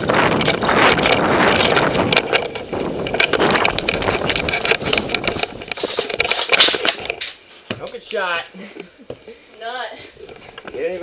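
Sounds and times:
metal sling swivel rattling: 0.3 - 7.4.

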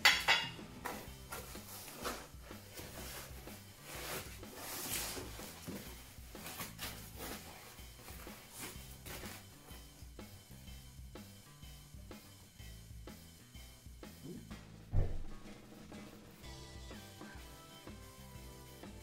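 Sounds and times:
faint background music: 0.0 - 19.0
paper and plastic wrap rustling: 1.2 - 9.4.

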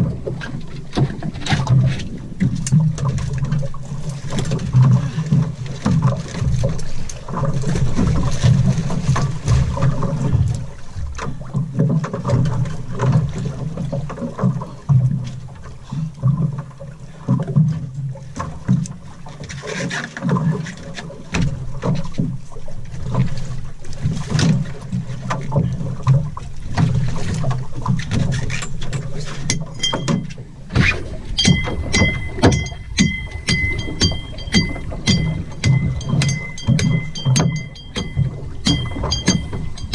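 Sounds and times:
water sloshing against boat hull: 0.0 - 39.9
wind on microphone: 29.8 - 39.9
gear knocking on deck: 29.9 - 39.9
high repeating tone pulses: 31.3 - 39.9.

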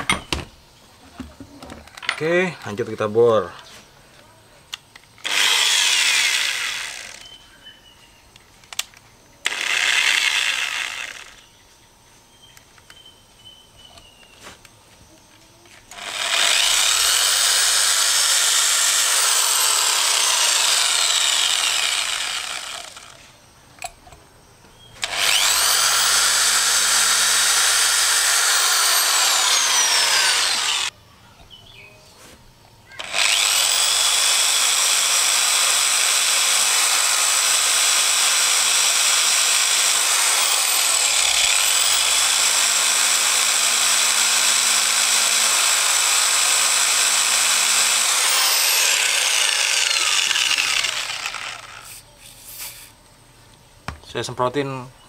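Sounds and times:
electric drill boring into metal: 5.2 - 7.4, 9.4 - 11.4, 15.9 - 23.2, 25.0 - 30.9, 33.0 - 52.0.

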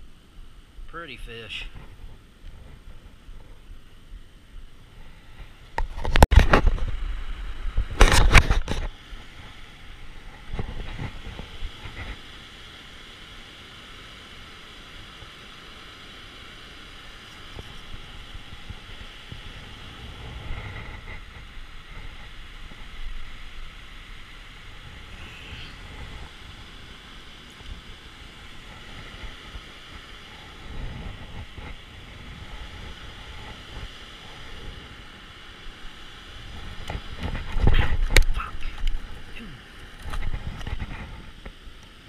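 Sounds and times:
river water rushing: 8.3 - 42.0
loud noise bursts: 24.7 - 26.7.

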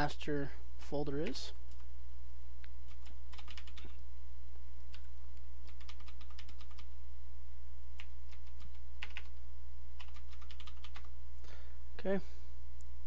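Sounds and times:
steady low hum: 0.0 - 13.0
keyboard typing clicks: 2.9 - 4.0, 4.8 - 6.9, 8.0 - 9.4, 10.0 - 11.1.

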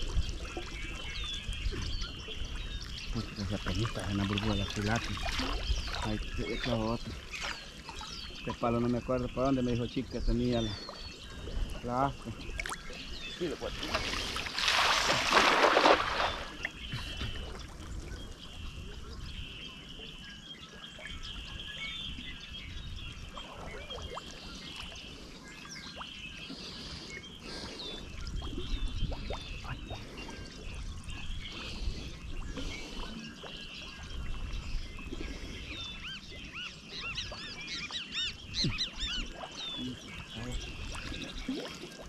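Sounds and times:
water trickling and splashing: 0.0 - 19.6, 20.3 - 42.0
birds chirping: 0.0 - 42.0.

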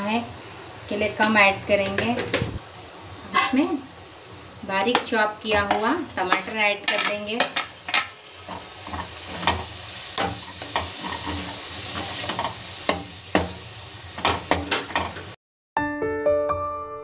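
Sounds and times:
onions sizzling in hot oil: 0.0 - 15.4
metal spatula scraping pan: 3.3 - 3.6, 5.5 - 13.6
soft piano music: 15.8 - 17.0.

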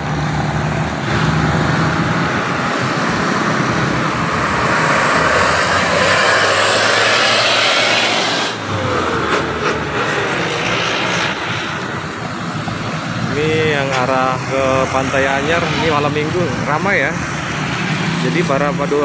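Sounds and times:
cars passing: 0.0 - 19.0
motorcycles passing: 0.0 - 19.0
truck passing: 0.0 - 19.0
tyres rushing on road: 0.0 - 19.0.

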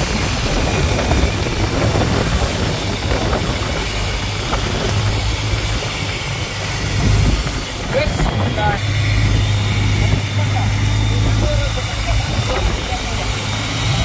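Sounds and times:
boat engine humming: 0.0 - 14.0
water splashing along hull: 0.0 - 14.0.

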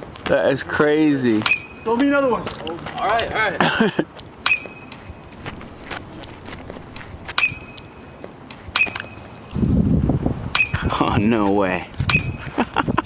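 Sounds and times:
low rumble: 5.0 - 8.5.

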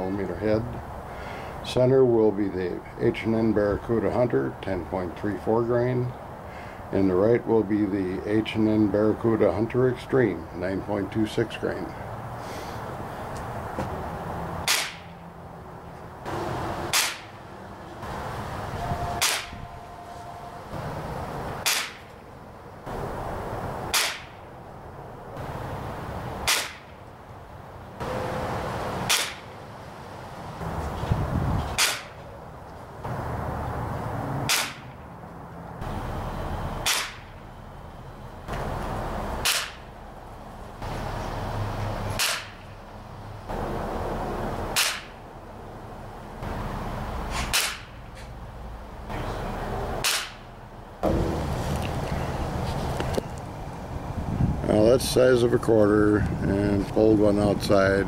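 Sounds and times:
air rifle shots: 14.6 - 15.1, 16.9 - 17.4, 19.2 - 19.6, 21.6 - 22.1, 23.9 - 24.4, 26.4 - 27.0, 29.0 - 29.5, 31.8 - 32.2, 34.5 - 35.0, 36.8 - 37.3, 39.4 - 39.9, 42.1 - 42.6, 44.7 - 45.1, 47.3 - 48.0, 50.0 - 50.4.

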